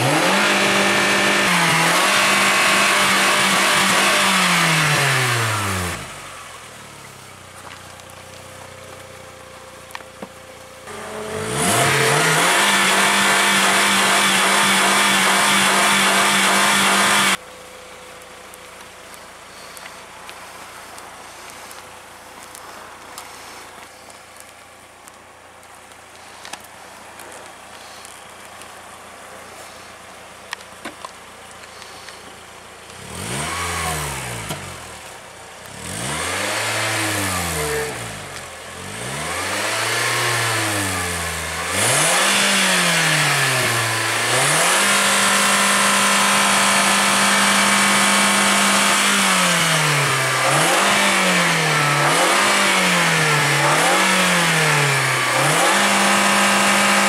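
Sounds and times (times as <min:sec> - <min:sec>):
car engine revving: 0:00.0 - 0:06.8, 0:10.8 - 0:17.4, 0:30.5 - 0:57.0.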